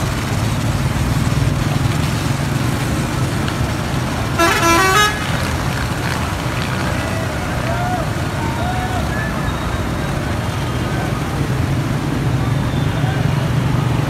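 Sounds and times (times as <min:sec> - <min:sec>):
street traffic rumble: 0:00.0 - 0:14.0
vehicle horn honking: 0:04.4 - 0:05.3.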